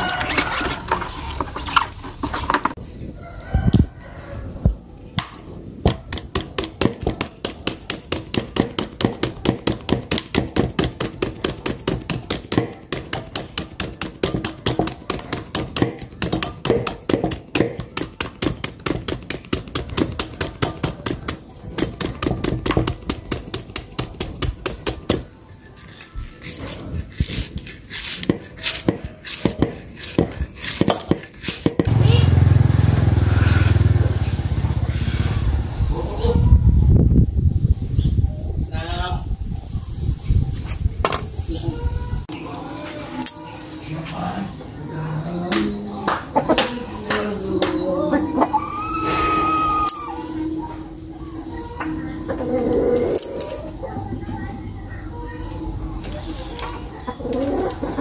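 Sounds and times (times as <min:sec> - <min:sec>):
cleaver chopping bamboo shoot: 0:05.2 - 0:25.3, 0:25.9 - 0:32.0.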